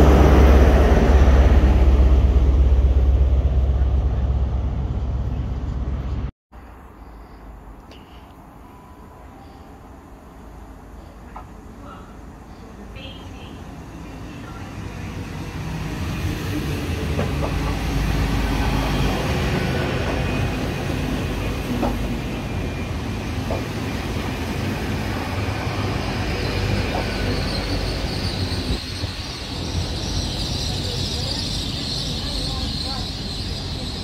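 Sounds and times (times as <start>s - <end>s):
train engines rumbling: 0.0s - 34.0s
high squeal: 24.9s - 34.0s.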